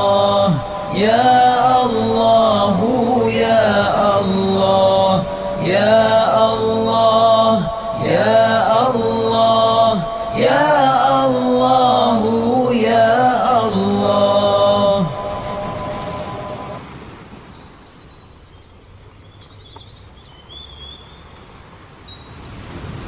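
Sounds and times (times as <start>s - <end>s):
person chanting with echo: 0.0s - 16.8s
surf-like noise: 0.0s - 19.2s, 21.0s - 23.0s.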